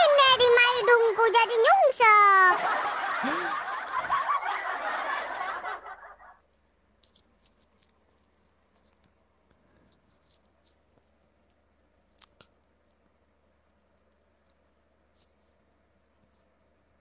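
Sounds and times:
man laughing: 3.0s - 4.4s
faint clicks: 10.4s - 13.1s.

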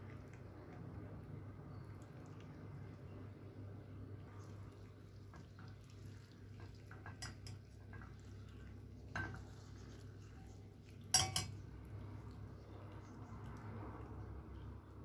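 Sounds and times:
caramel bubbling: 0.0s - 15.0s
spatula stirring in a saucepan: 4.2s - 14.4s.

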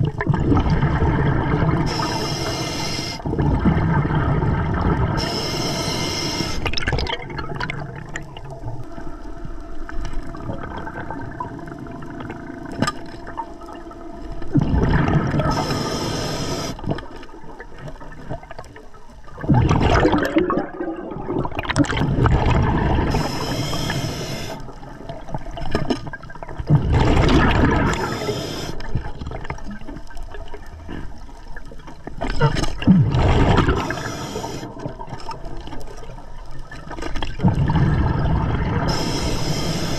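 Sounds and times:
gurgling exhaled bubbles: 0.0s - 18.7s, 19.3s - 31.4s, 32.2s - 39.9s
hissing regulator inhalations: 1.8s - 3.3s, 5.2s - 6.7s, 15.4s - 16.8s, 23.0s - 24.7s, 27.8s - 28.9s, 33.7s - 34.8s, 38.9s - 39.9s.

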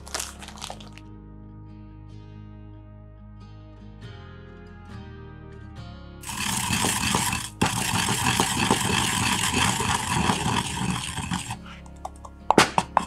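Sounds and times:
pestle grinding in a bowl: 6.2s - 13.0s
sharp taps: 11.9s - 13.0s.

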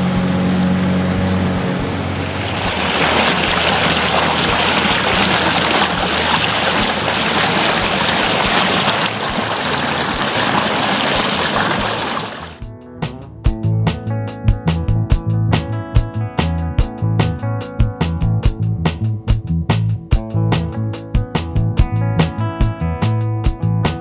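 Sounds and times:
faint boat motor hum: 0.0s - 12.6s
water rushing along hull: 0.0s - 12.6s.

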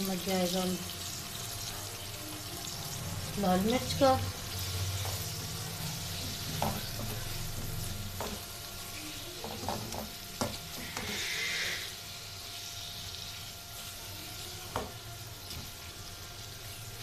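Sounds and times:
food sizzling in a wok: 0.0s - 17.0s
spatula scraping a pan: 9.4s - 12.0s.

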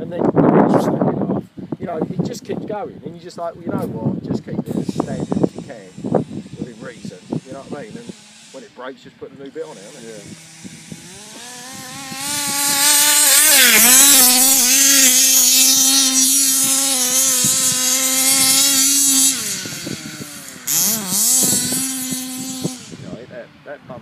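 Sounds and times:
small two-stroke engine buzzing: 4.7s - 23.6s.

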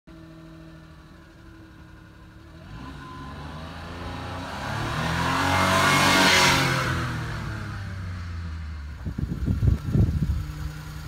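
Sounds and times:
small truck engine idling: 0.1s - 2.6s, 8.0s - 11.0s
truck pulling away revving: 2.5s - 8.0s.

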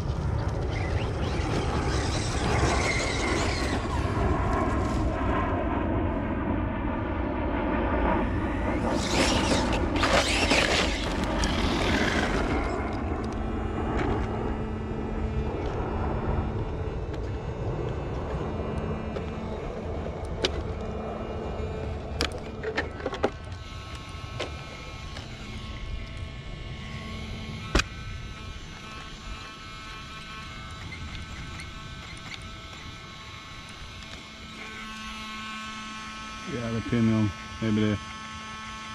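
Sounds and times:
rc truck motor whine: 0.0s - 5.4s, 8.0s - 38.9s
tyres on gravel: 8.8s - 13.3s.

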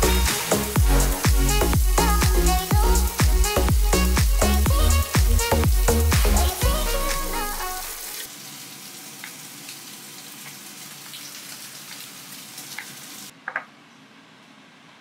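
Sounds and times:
background music: 0.0s - 8.2s
pork sizzling on a grill: 8.0s - 13.3s.

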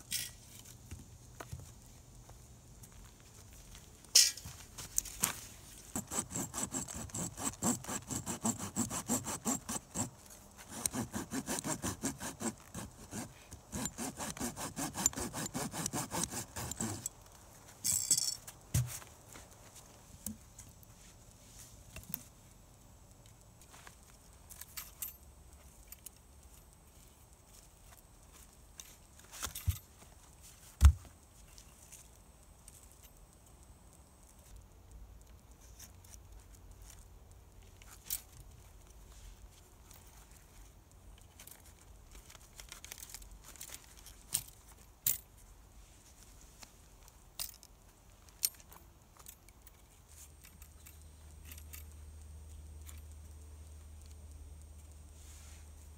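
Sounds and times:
hand saw cutting wood: 5.9s - 17.1s
brief rasp: 6.0s - 10.1s, 10.7s - 17.1s.

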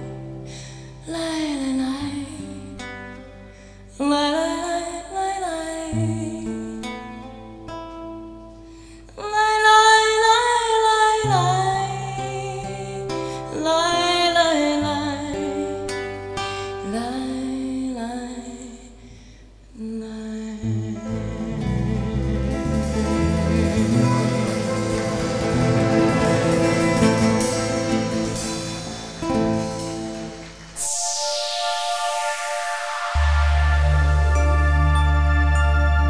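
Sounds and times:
woman singing: 1.0s - 2.9s, 4.0s - 7.1s, 9.2s - 16.0s, 16.8s - 19.0s, 19.8s - 22.3s
classical guitar plucked: 20.7s - 30.8s.

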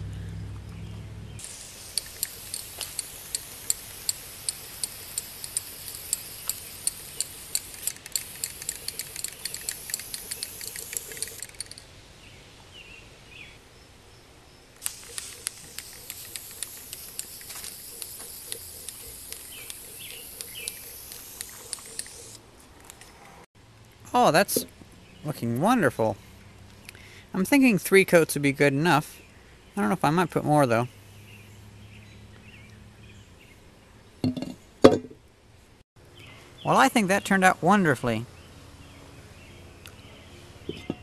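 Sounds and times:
spray paint can hissing: 1.4s - 11.8s, 14.8s - 22.4s
sharp clicks: 1.4s - 11.9s, 14.8s - 23.0s.

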